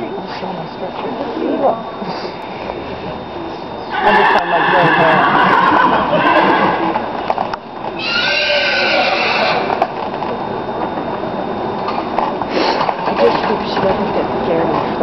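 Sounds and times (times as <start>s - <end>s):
horse whinnying: 3.9s - 7.0s, 8.0s - 9.8s.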